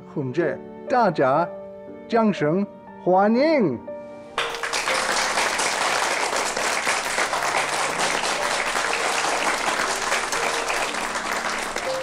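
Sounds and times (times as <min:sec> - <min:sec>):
crowd applauding: 0:04.4 - 0:12.0.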